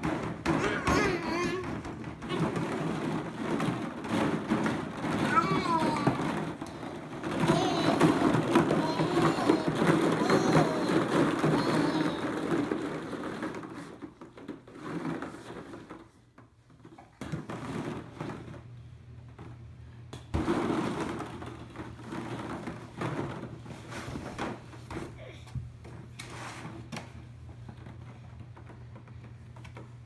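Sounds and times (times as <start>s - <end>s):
plastic balls clattering: 0.0s - 30.0s.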